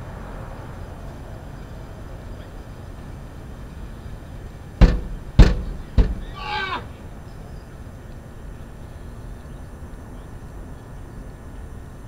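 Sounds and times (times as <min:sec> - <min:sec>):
truck engine idling: 0:00.0 - 0:11.7.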